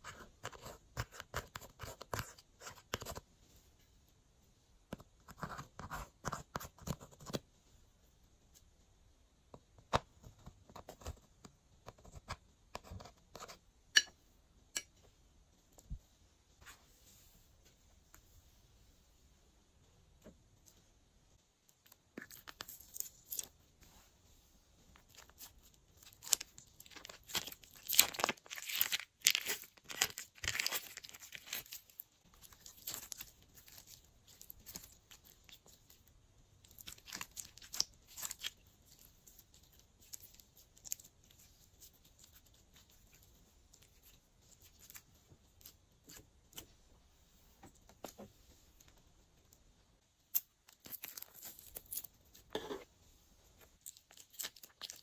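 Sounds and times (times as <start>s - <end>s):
slime crackling and tearing: 25.1s - 35.8s.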